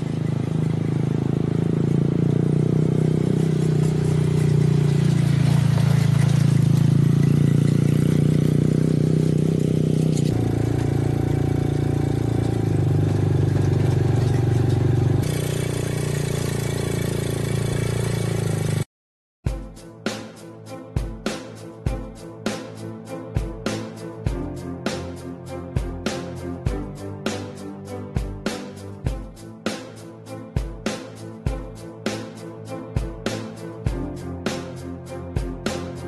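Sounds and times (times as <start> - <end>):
quad bike engine running: 0.0 - 18.9.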